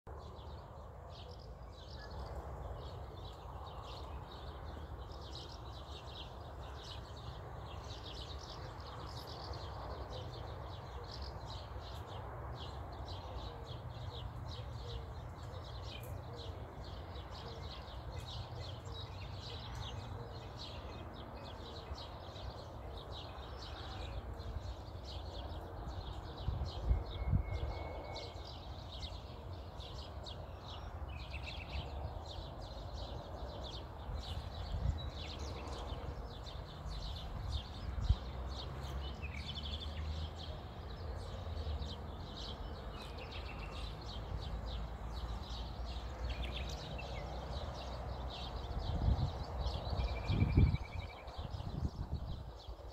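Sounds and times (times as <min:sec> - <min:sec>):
small birds chirping and singing: 0:00.1 - 0:52.9
wind rumble on microphone: 0:20.8 - 0:29.1, 0:30.1 - 0:40.5, 0:45.0 - 0:52.9
wind gusts thumping: 0:48.9 - 0:52.5.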